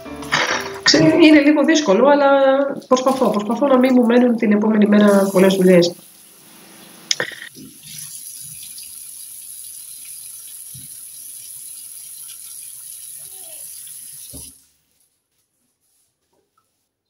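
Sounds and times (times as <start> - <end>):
water splashing over hands: 2.6 - 4.2
tap running into a sink: 10.6 - 11.1, 14.2 - 14.6.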